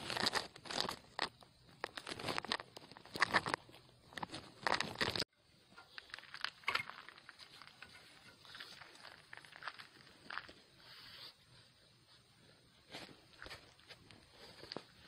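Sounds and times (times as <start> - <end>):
rustling through dry ground cover: 0.0 - 15.0.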